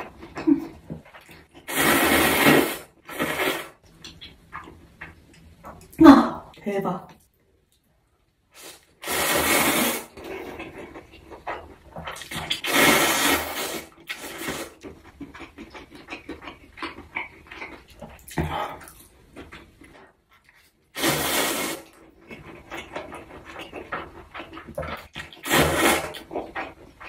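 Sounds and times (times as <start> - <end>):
wet chewing and smacking: 0.0 - 1.7, 3.8 - 6.0, 10.2 - 12.7, 14.0 - 20.9, 22.0 - 27.0
slurping noodles: 1.5 - 3.8, 8.6 - 11.0, 12.1 - 14.8, 21.0 - 22.0, 25.0 - 26.8.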